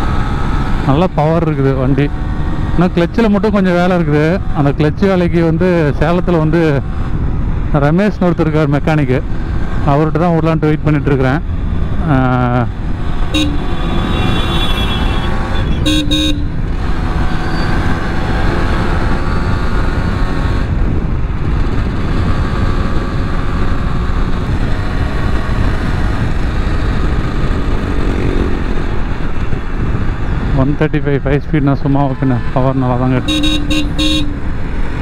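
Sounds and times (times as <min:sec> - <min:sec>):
road and wind noise: 0:00.0 - 0:35.0
vehicle horn toots: 0:13.3 - 0:16.6, 0:33.2 - 0:34.5
two-stroke motorcycle engine running: 0:32.4 - 0:35.0.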